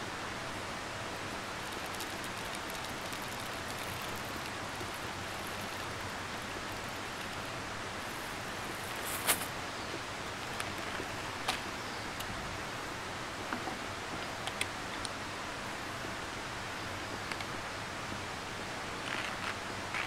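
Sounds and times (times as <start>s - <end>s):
river flowing: 0.0s - 14.0s.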